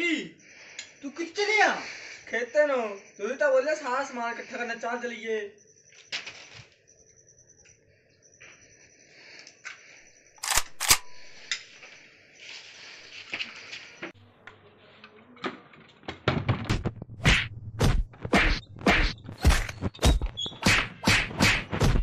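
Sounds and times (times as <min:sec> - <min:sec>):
sharp whacks: 0:16.8 - 0:22.0.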